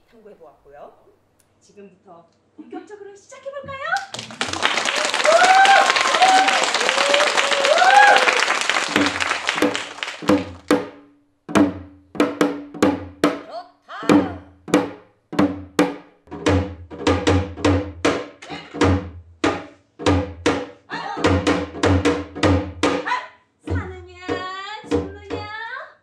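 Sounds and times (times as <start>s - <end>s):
deep low drum beats: 14.1s - 25.7s.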